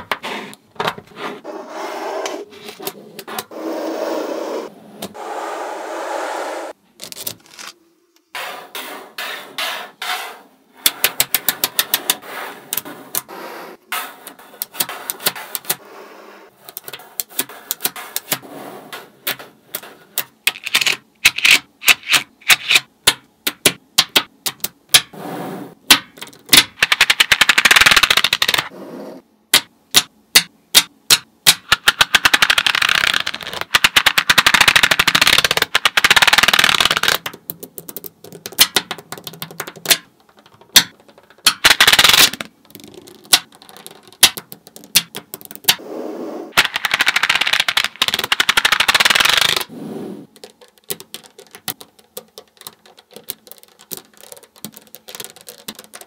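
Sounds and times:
magnetic balls clicking together: 10.8 - 13.3, 14.2 - 15.8, 16.7 - 18.4, 19.2 - 25.2, 25.9 - 28.7, 29.5 - 45.8, 46.5 - 56.0
rapid rattling clicks of balls: 10.8 - 13.3, 25.9 - 28.7, 29.5 - 45.8, 46.5 - 56.0.

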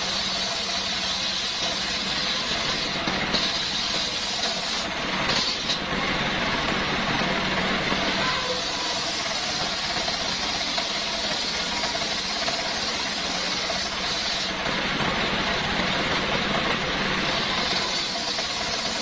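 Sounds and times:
circular saw blade hissing: 0.0 - 5.9, 8.1 - 14.7, 17.1 - 19.0
diesel engine running: 0.0 - 19.0.

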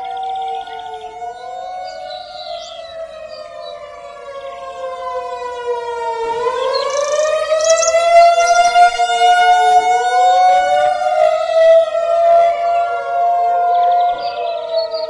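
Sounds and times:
wavering warning siren: 0.0 - 15.0.

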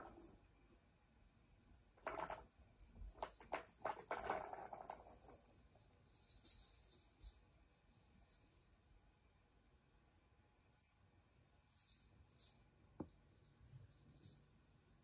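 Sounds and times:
plastic balls clicking and rattling: 0.0 - 0.4, 2.0 - 5.5.

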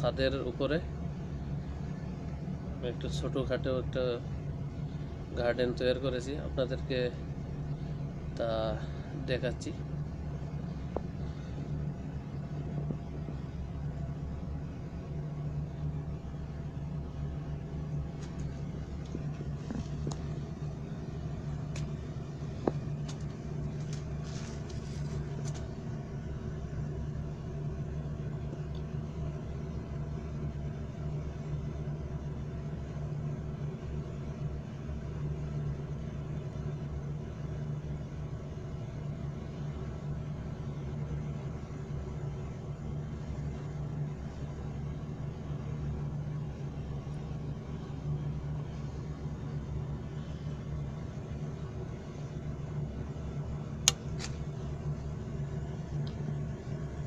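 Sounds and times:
low mechanical hum: 0.0 - 57.0
sharp click: 53.8 - 54.4.

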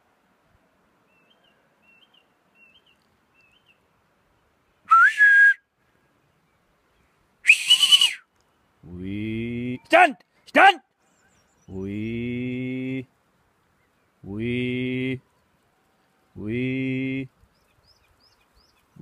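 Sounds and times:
whistled commands: 4.9 - 5.7, 7.4 - 8.3.

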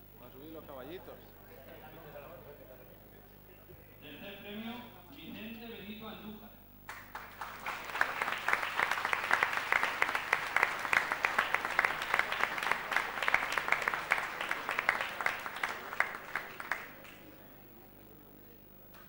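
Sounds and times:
group of people clapping: 6.9 - 17.6.

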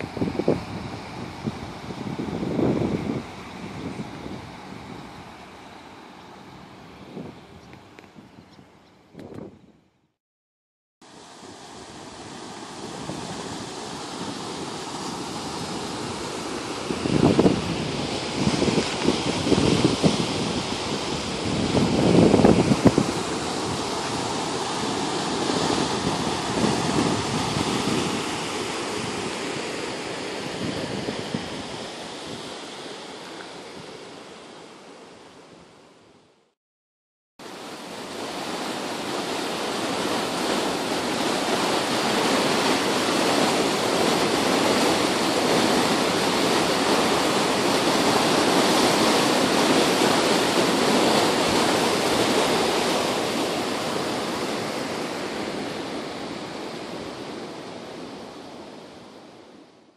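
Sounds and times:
wind on microphone: 0.0 - 5.4, 6.4 - 10.0, 11.9 - 34.2, 37.5 - 59.2
floodwater rushing: 11.0 - 35.4, 37.4 - 59.4.

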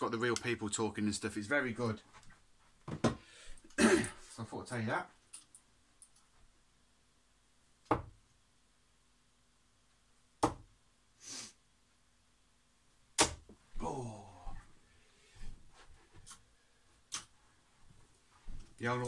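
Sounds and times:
darts striking dartboard: 13.2 - 13.5.

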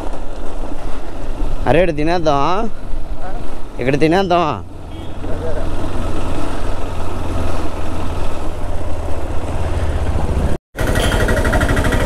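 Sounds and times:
motorcycle engine running: 4.6 - 12.0.

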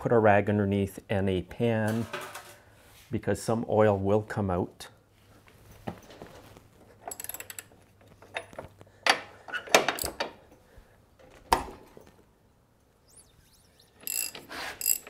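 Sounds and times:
ratchet wrench clicks: 7.1 - 7.7, 14.0 - 15.0.

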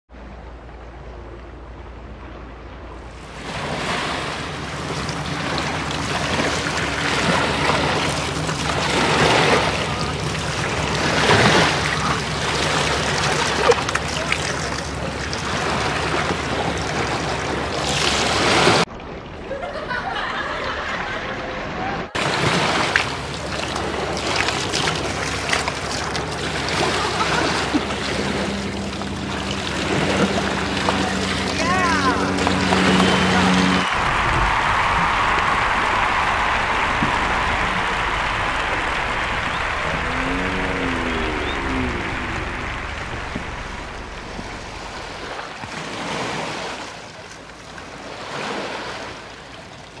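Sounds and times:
otter splashing in stream: 3.1 - 18.8, 22.2 - 49.7
water gushing from drainpipe: 3.5 - 18.8, 22.2 - 32.4.

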